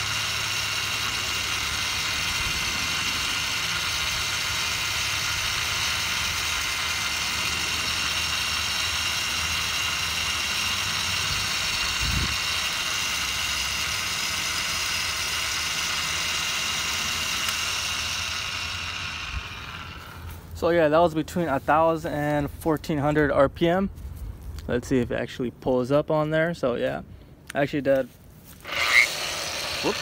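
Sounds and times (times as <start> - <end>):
polisher motor whine: 0.0 - 20.4, 28.6 - 30.0.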